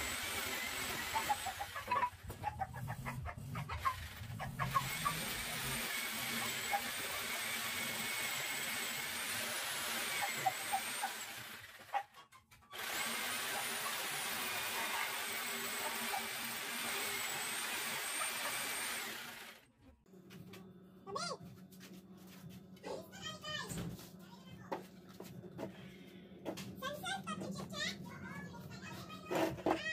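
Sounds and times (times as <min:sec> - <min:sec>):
jigsaw cutting wood: 0:00.0 - 0:02.3, 0:02.9 - 0:19.7.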